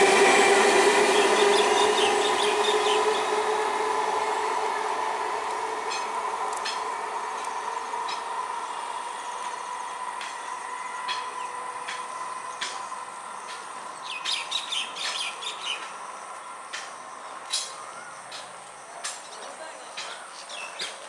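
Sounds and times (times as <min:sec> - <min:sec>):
birds chirping: 0:01.1 - 0:03.5, 0:07.4 - 0:16.0.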